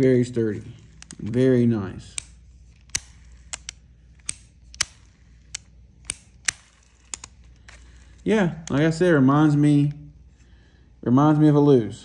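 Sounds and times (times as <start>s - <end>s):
fishing reel clicks: 0.6s - 9.1s.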